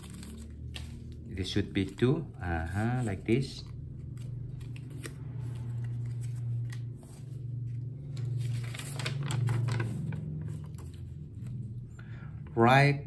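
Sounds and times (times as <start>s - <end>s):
steady low hum: 0.0s - 13.0s
paper sheet rustling: 4.2s - 11.5s.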